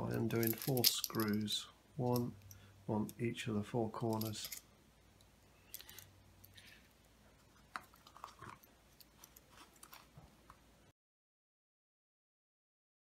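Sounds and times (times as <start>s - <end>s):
small parts clicking and knocking: 0.0s - 3.2s, 4.0s - 10.6s.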